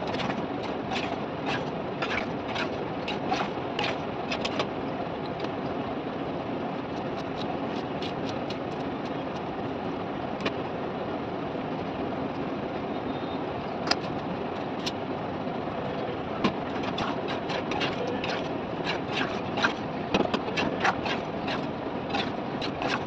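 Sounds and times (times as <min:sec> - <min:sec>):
ladle clicking and scraping pot: 0:00.0 - 0:04.6, 0:16.7 - 0:23.0
steady rushing background noise: 0:00.0 - 0:23.0
metal ladle stirring curry in pot: 0:16.7 - 0:19.8, 0:20.4 - 0:23.0.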